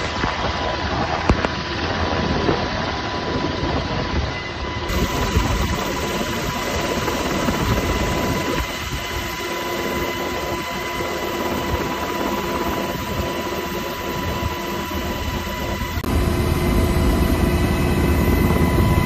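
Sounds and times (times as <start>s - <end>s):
helicopter engines and rotors: 0.0s - 19.0s
high whine: 4.2s - 19.0s.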